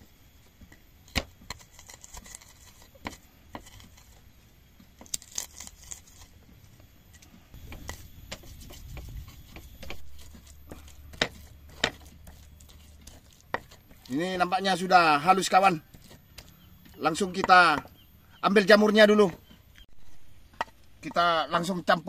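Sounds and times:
pestle grinding paste: 0:01.1 - 0:04.2, 0:07.6 - 0:18.1
pestle knocking in mortar: 0:07.6 - 0:14.1.

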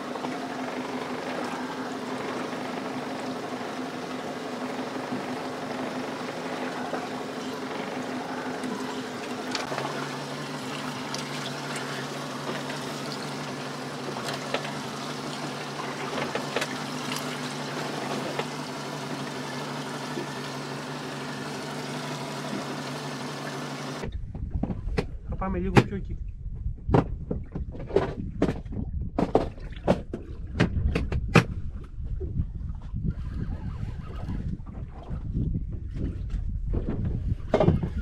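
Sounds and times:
water washing against hull: 0:00.0 - 0:24.1
boat motor running: 0:00.0 - 0:26.1.

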